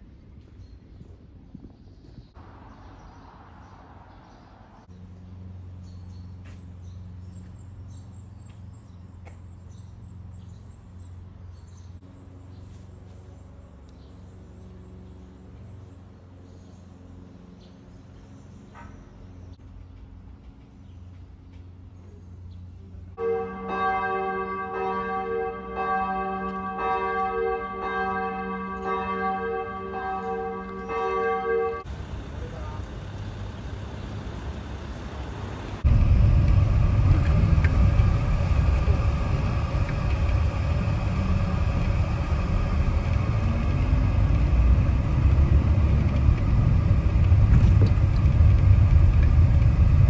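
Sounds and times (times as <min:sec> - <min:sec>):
outdoor ambience: 0:00.0 - 0:50.0
small birds chirping: 0:00.3 - 0:23.2
church bell tolling: 0:23.2 - 0:31.9
steady low hum: 0:27.6 - 0:50.0.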